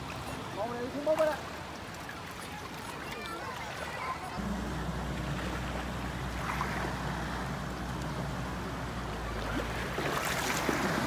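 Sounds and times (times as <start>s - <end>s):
water: 0.0s - 11.0s
small boat engine running: 4.4s - 11.0s.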